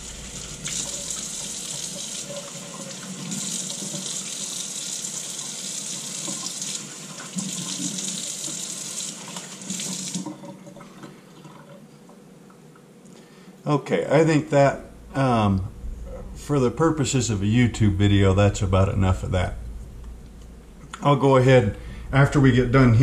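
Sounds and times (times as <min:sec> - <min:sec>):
tap water running into sink: 0:00.0 - 0:11.8.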